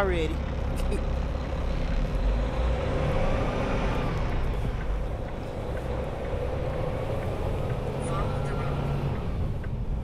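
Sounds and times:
truck engine and road rumble: 0.0s - 10.0s.

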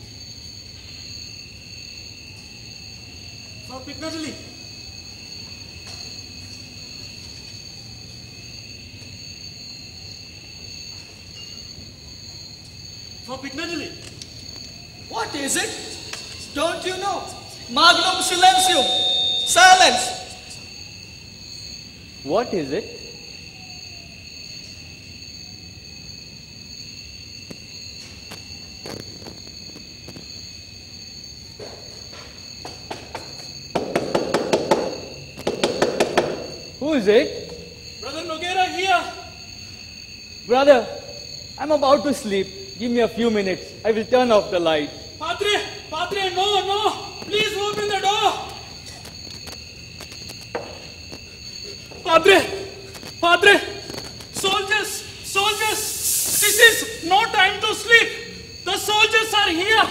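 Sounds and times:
crickets chirping: 0.0s - 59.9s
knocking on a door: 32.7s - 36.6s, 50.5s - 50.9s.

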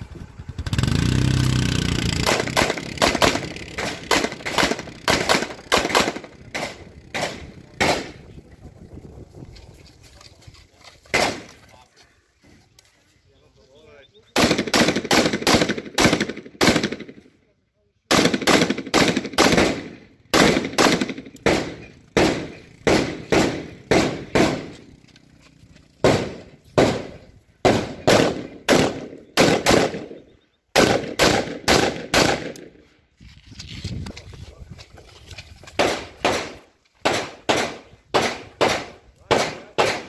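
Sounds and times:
rifle gunshots: 2.2s - 8.2s, 11.1s - 11.5s, 14.4s - 17.2s, 18.1s - 24.9s, 26.0s - 32.8s, 35.8s - 40.0s.

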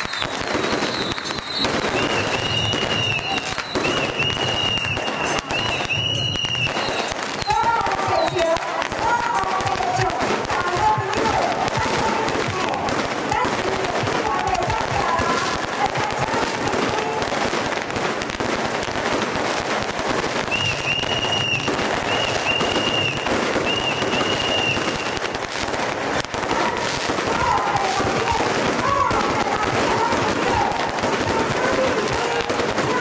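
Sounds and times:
high whistle-like tone: 0.0s - 7.6s, 20.5s - 25.2s
crowd voices: 0.0s - 33.0s
firecrackers crackling: 0.0s - 33.0s.

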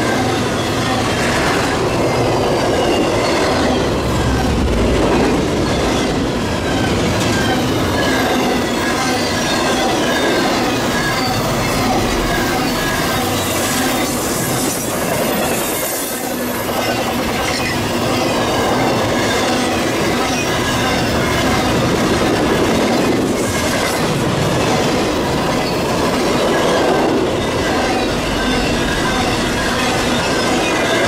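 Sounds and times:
freight train wheels rumbling: 0.0s - 31.0s.

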